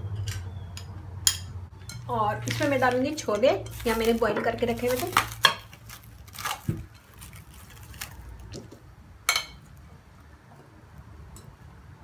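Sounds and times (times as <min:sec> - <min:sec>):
cling film rustling: 0:02.3 - 0:08.9.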